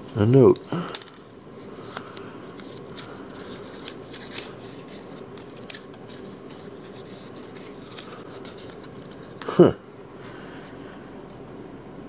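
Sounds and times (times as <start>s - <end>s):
paper crinkling: 0.9s - 9.6s.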